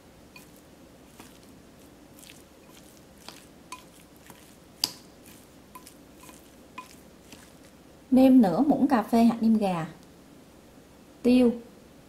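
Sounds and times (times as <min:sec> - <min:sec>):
chopsticks clicking on bowl: 0:00.4 - 0:01.5, 0:02.2 - 0:07.7
wet minced meat squelching: 0:00.4 - 0:07.9.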